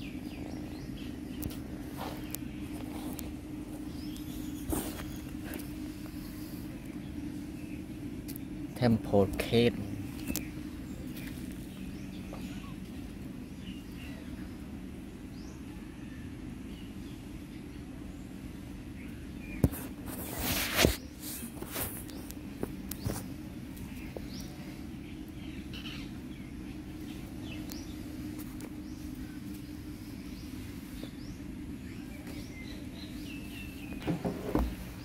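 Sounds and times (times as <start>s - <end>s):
faint bird chirps: 0.0s - 9.0s, 9.9s - 19.9s, 22.0s - 34.0s
steady low hum: 0.0s - 35.0s
short rustling: 1.5s - 6.7s.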